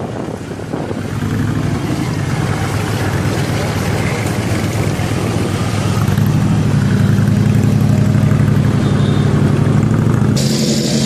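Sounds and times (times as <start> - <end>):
motorcycle engine running: 0.0 - 11.0
engine with steady hiss: 10.4 - 11.0.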